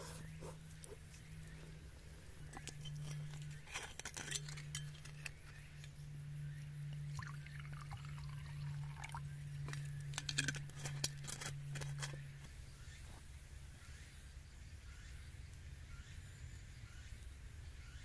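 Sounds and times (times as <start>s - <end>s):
steady low hum: 0.0s - 18.0s
clinks of small hard objects: 2.5s - 5.6s, 9.6s - 12.2s.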